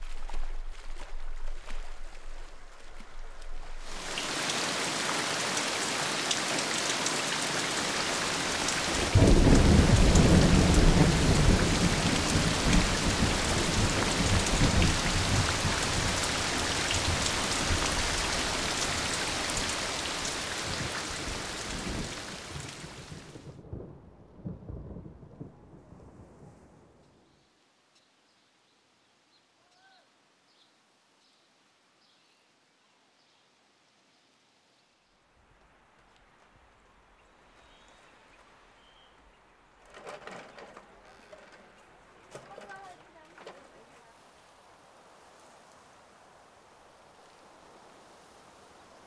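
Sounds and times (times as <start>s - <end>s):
heavy rain pouring: 0.0s - 25.5s, 39.7s - 49.0s
thunderclap rumbling: 8.6s - 27.0s.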